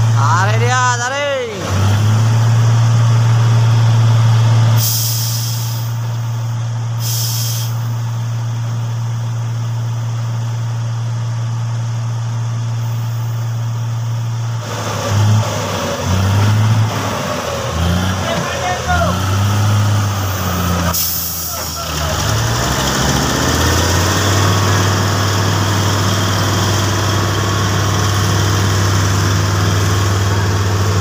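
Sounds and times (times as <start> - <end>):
diesel engine running: 0.0 - 31.0
air brake hisses: 4.8 - 6.1, 7.0 - 7.9, 20.9 - 21.9.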